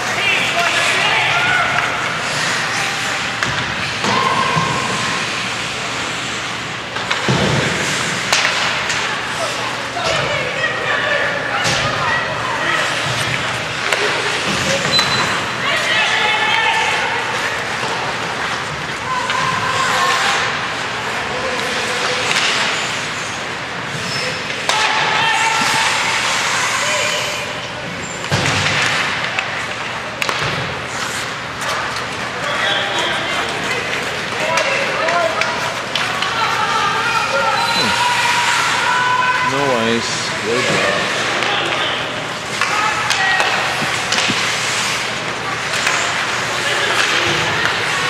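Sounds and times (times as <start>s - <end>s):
skates on ice: 0.0s - 39.5s, 40.2s - 48.0s
crowd noise: 0.0s - 48.0s
voices calling out: 32.3s - 44.2s.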